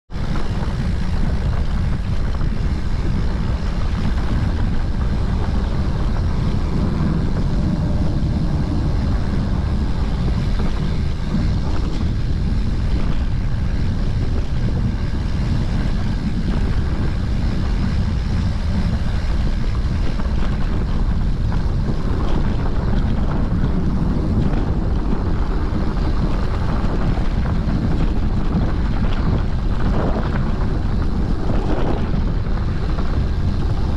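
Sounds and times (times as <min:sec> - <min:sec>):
wind on camera microphone: 0:00.0 - 0:33.9
bike tyres on rough ground: 0:00.2 - 0:33.9.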